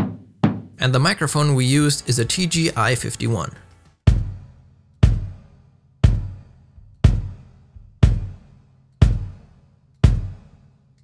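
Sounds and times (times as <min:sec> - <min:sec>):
kick drum thuds: 0:00.0 - 0:00.8, 0:04.0 - 0:04.4, 0:05.0 - 0:05.4, 0:06.0 - 0:08.4, 0:09.0 - 0:09.4, 0:10.0 - 0:10.4.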